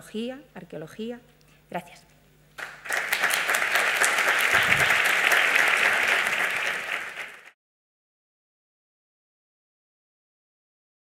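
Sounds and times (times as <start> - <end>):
small audience applauding: 2.6 - 7.6.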